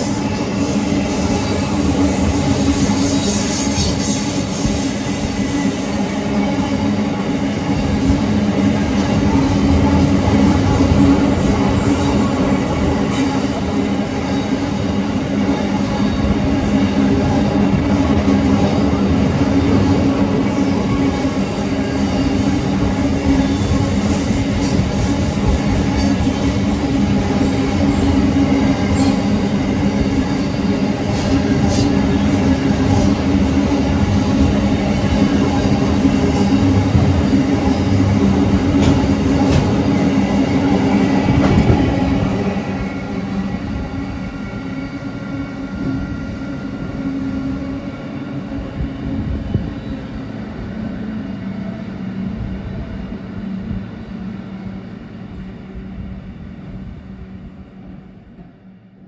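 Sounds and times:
train engine drone: 0.0 - 59.0
wheels clattering on rails: 35.1 - 40.3.

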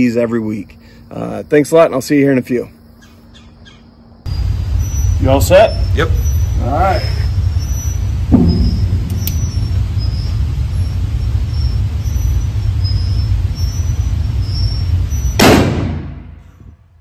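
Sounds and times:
steady low rumble: 4.0 - 17.0
revolver gunshot: 8.3 - 9.5, 15.4 - 16.4.

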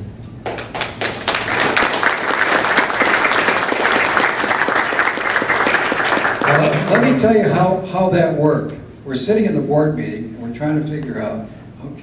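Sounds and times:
audience applauding: 0.4 - 7.4.

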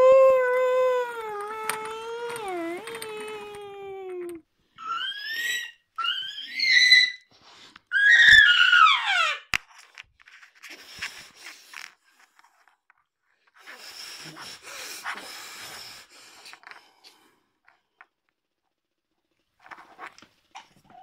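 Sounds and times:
high-pitched squealing cry: 0.0 - 7.3, 7.9 - 9.5.

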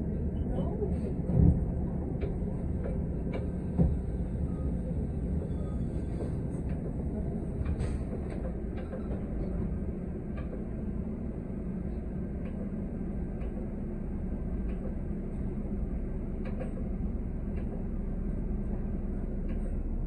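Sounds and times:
bus engine and road rumble: 0.0 - 20.0
faint rattles and clicks: 7.6 - 9.7, 14.6 - 15.1, 16.4 - 18.4.

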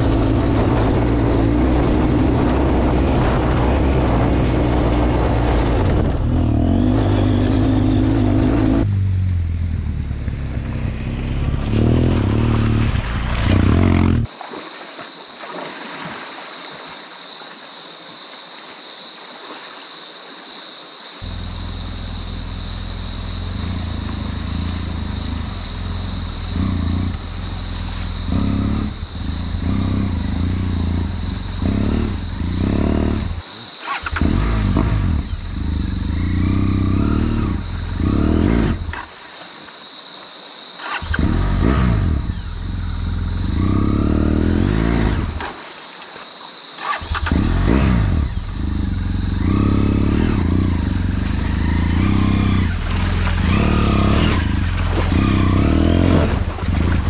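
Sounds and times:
motorcycle engine revving: 0.0 - 14.3, 21.2 - 39.1, 40.8 - 45.5, 46.8 - 57.0
flowing water rushing: 10.6 - 21.3, 45.3 - 47.2, 52.6 - 53.6, 54.3 - 55.3.

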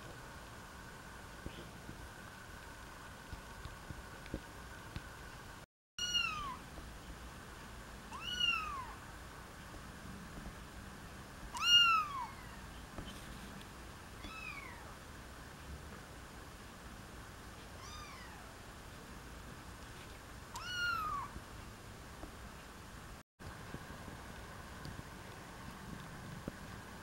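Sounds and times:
kitten meowing: 6.0 - 6.6, 8.1 - 9.0, 11.6 - 12.6, 14.2 - 14.9, 17.8 - 18.5, 20.5 - 21.3.

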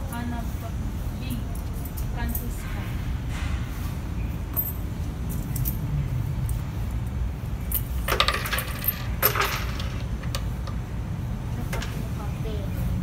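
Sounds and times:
small metal objects jingling: 4.5 - 6.0.

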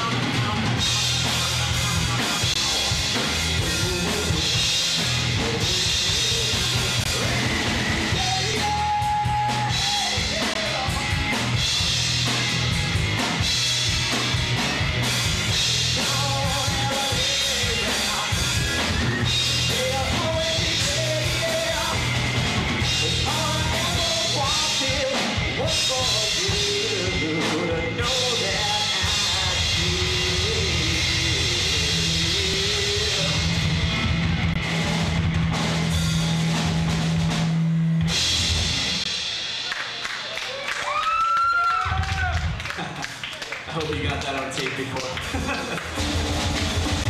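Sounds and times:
electric guitars: 0.0 - 43.4, 44.0 - 47.0
drum kit: 0.0 - 47.0
lead vocal singing: 3.5 - 11.1, 15.5 - 22.2, 22.8 - 33.6.

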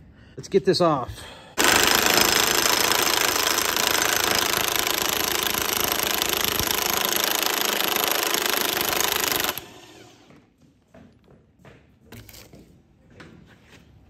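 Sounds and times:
impact wrench hammering: 1.6 - 10.4.

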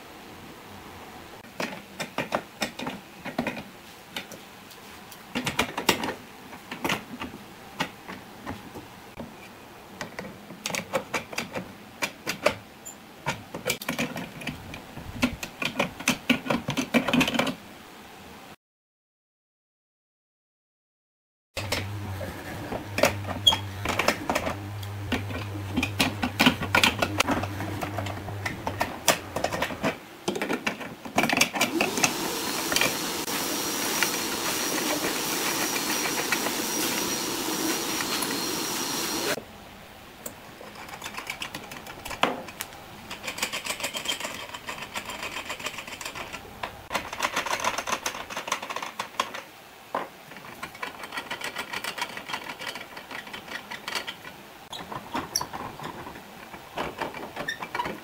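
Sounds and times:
woodworking machine running: 21.6 - 29.8, 31.6 - 39.4
low hum: 21.6 - 29.9
clicking and tapping: 22.8 - 33.0.

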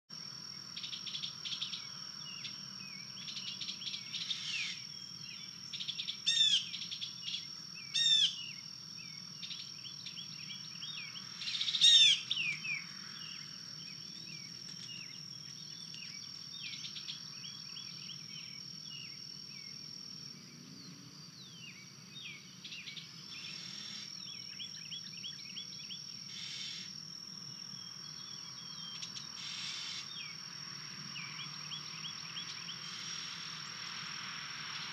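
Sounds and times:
high-pitched insect drone: 0.2 - 34.9
birds chirping and singing: 1.6 - 19.7.

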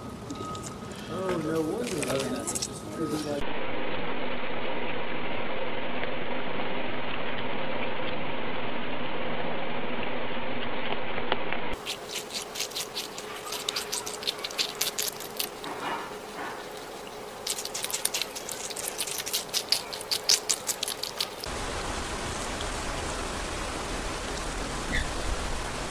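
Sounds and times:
faint low hum: 0.0 - 25.8
guinea pigs chewing: 0.2 - 3.4, 11.7 - 21.5.

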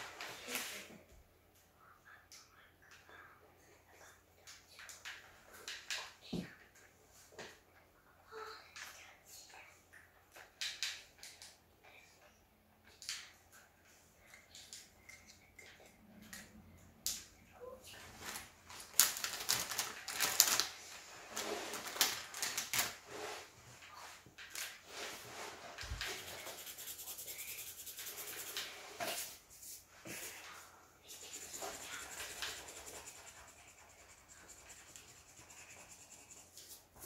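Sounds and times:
marker scratching on paper: 26.0 - 30.3, 31.0 - 37.0.

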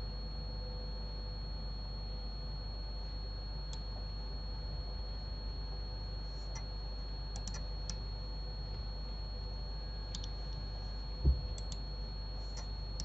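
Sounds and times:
low electrical hum: 0.0 - 13.0
mouse and keyboard clicks: 10.1 - 10.3
dull thump: 11.2 - 11.6.

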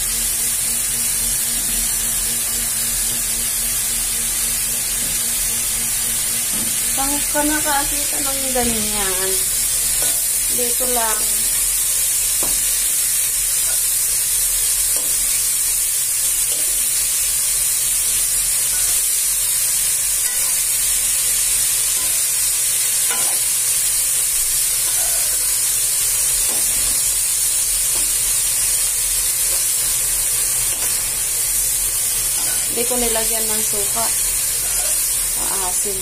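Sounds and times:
food sizzling in a wok: 0.0 - 36.0
spatula scraping pan: 24.7 - 25.6.

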